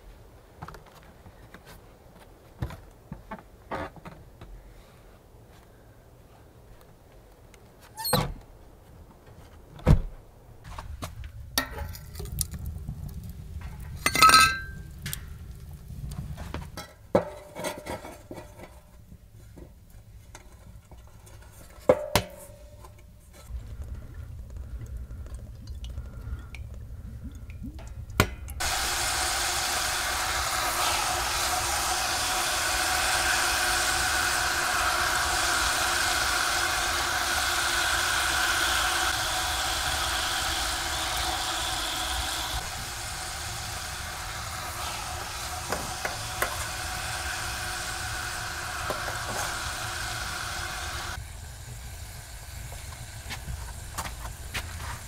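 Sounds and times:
firewood knocking and clinking: 11.1 - 18.6
meat sizzling in hot fat: 28.6 - 55.0.

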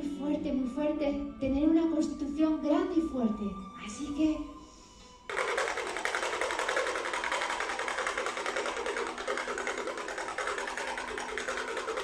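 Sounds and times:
fast mechanical rattle: 5.3 - 12.0.

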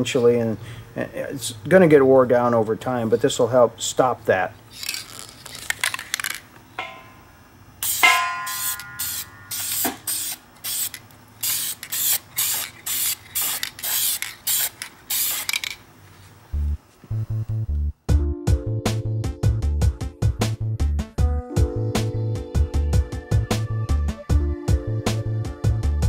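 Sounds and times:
aerosol can spraying hisses: 7.8 - 15.8
music: 16.6 - 26.0.

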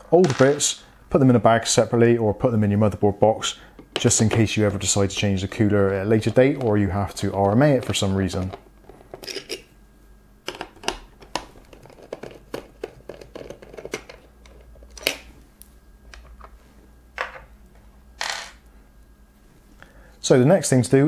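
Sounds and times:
plastic parts handled: 10.5 - 15.3.

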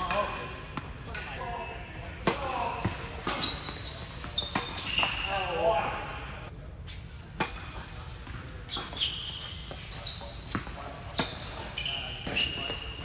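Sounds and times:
shoes squeaking on court: 2.8 - 6.3, 8.3 - 13.0.

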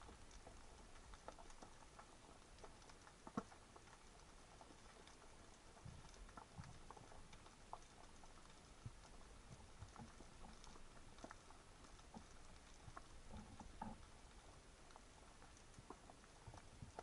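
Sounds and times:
soft hiss: 0.0 - 17.0
underwater clicks and ticks: 0.0 - 17.0.

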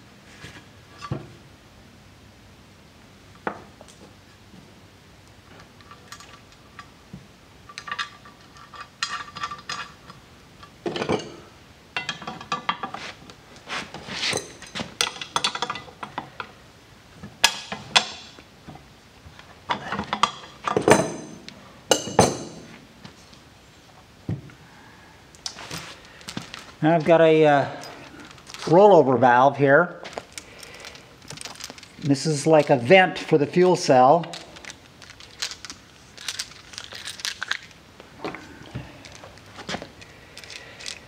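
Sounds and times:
metal hardware clinking: 19.7 - 22.7.

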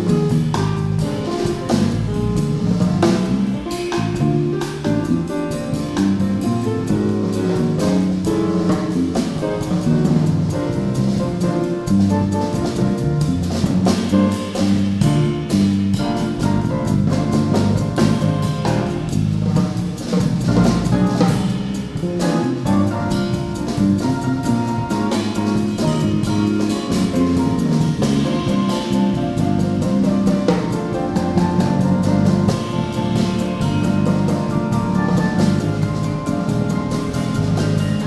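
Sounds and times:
cymbals: 0.0 - 38.0
small-group jazz: 0.0 - 38.0.

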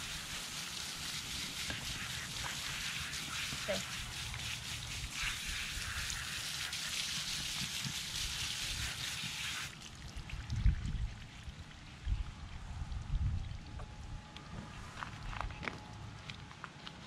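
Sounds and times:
hose spraying water: 0.0 - 9.8.

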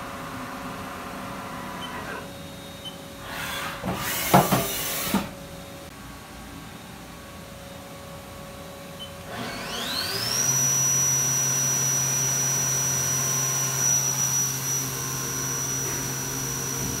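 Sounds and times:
machine spindle whine: 9.0 - 17.0.

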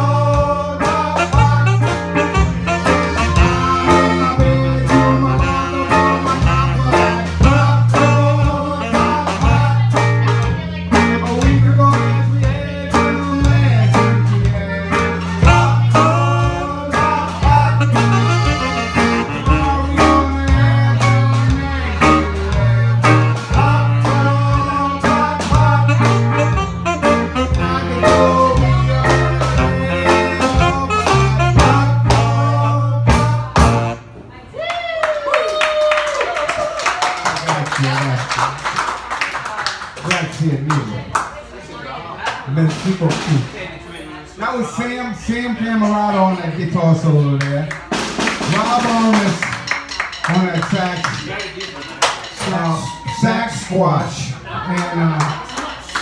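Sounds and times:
saxophone: 0.0 - 11.1, 11.8 - 34.2
electric guitar: 0.0 - 34.0
accordion: 0.0 - 34.1
bass line: 0.0 - 34.2
drums: 0.0 - 34.6, 42.4 - 43.8, 47.7 - 54.5.

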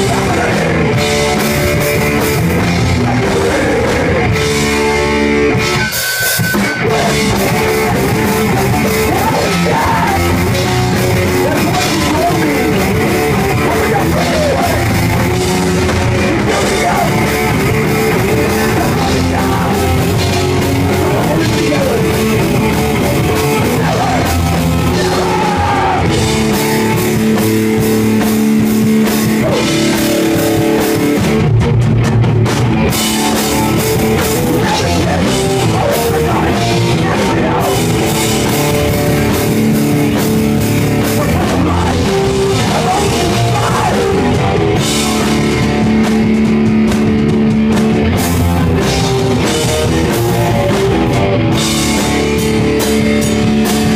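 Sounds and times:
live rock band playing: 0.0 - 53.9.

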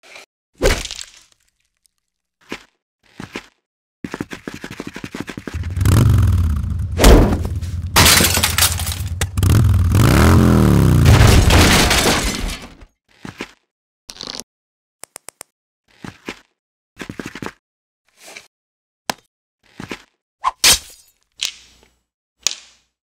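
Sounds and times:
motorbike engine revving: 5.6 - 11.5
sharp impacts: 5.6 - 12.8
crashing and breaking: 6.8 - 12.8.

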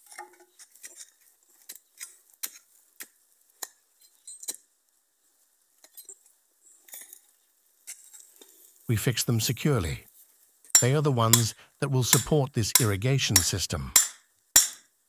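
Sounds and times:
hand tool chopping stony soil: 0.2 - 3.8, 10.8 - 14.8
tool clinking on stones: 10.8 - 11.5.

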